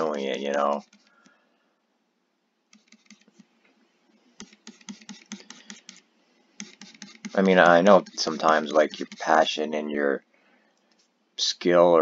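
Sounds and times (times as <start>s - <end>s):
stylus tapping on tablet: 4.4s - 6.0s.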